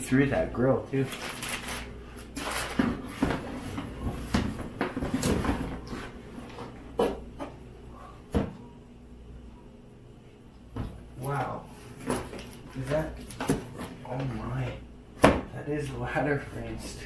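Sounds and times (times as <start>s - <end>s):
plastic bags rustling: 0.9s - 3.2s.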